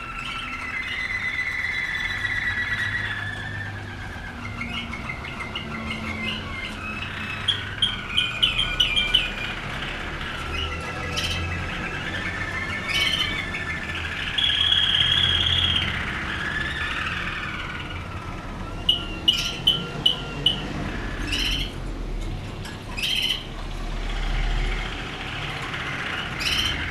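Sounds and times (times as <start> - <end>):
canaries singing: 0.0 - 26.9
canary trill: 0.0 - 26.9.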